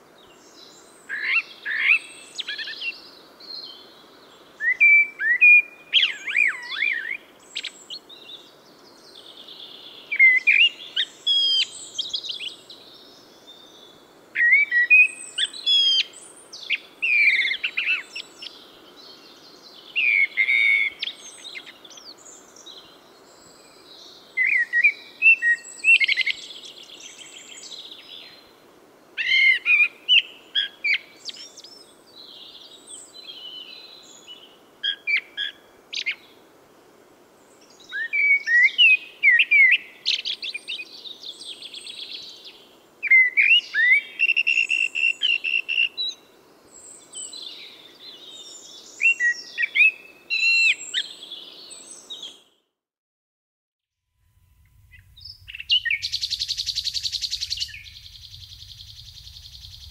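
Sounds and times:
low background hiss: 0.0 - 52.5, 54.2 - 59.9
blackbird singing: 37.8 - 46.2, 46.8 - 52.4, 54.8 - 59.9.

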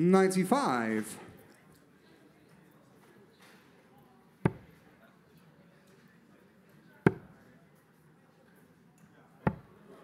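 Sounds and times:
darts hitting dartboard: 4.4 - 4.8, 7.1 - 7.4, 9.5 - 9.7.

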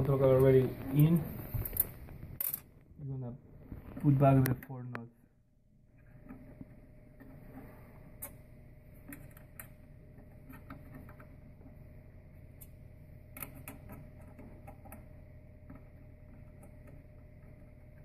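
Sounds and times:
steady low hum: 0.0 - 18.0
small clicks and scrapes: 6.0 - 11.8, 12.5 - 18.0.

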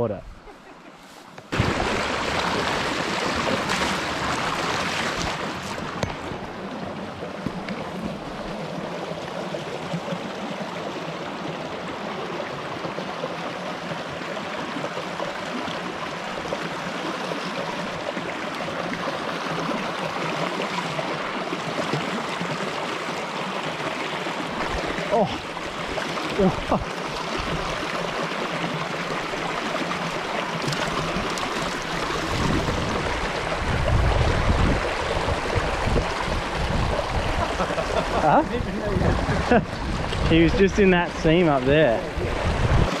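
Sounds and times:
creek water rippling over stones: 0.9 - 43.0.

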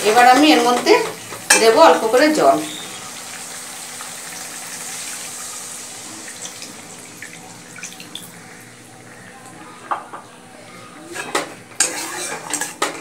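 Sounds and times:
water pouring into hot pan hissing: 1.2 - 8.7.

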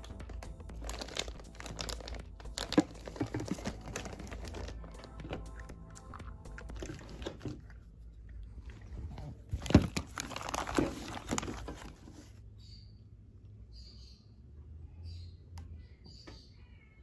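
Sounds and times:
plastic bags crinkling: 0.0 - 5.6, 6.2 - 7.8, 8.9 - 12.3.

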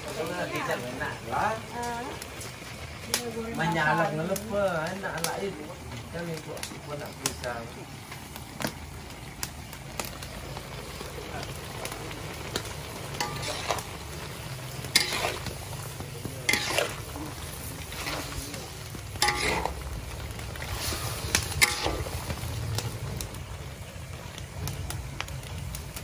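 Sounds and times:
pork sizzling: 0.0 - 26.0
spatula scraping a wok: 12.3 - 23.0.

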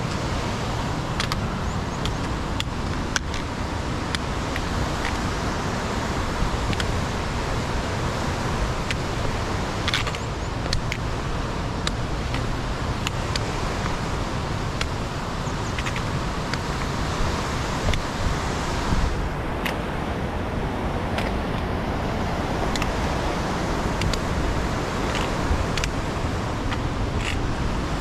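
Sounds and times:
rushing outdoor noise: 0.0 - 28.0
light sharp clicks: 24.0 - 24.2.

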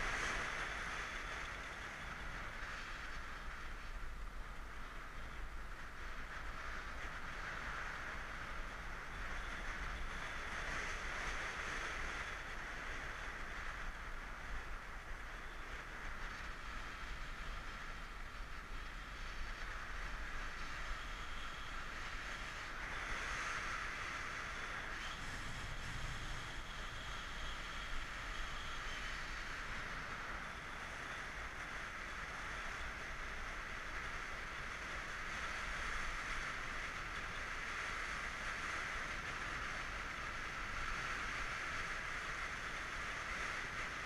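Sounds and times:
wind rushing over microphone: 0.0 - 44.0.

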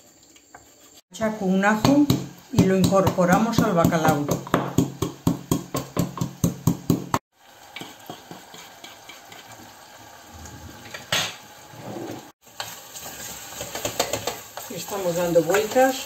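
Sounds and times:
fish sizzling in oil: 0.0 - 16.0
pestle pounding in wooden mortar: 1.8 - 7.2
wooden spoon scraping saucepan: 10.4 - 12.3.

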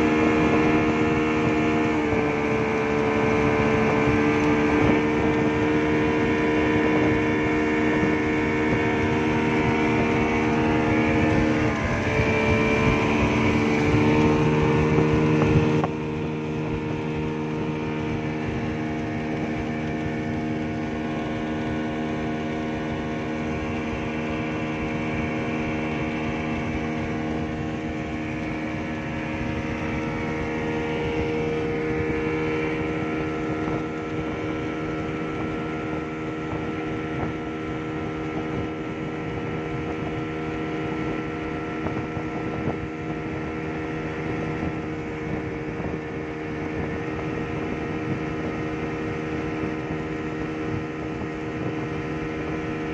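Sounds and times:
outboard motor running: 0.0 - 52.9
rushing water: 0.0 - 52.9
wind: 0.0 - 52.9.

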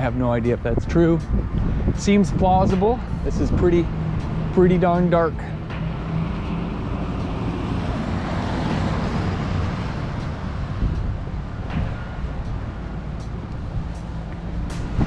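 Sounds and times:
truck driving past on wet road: 5.4 - 10.9.

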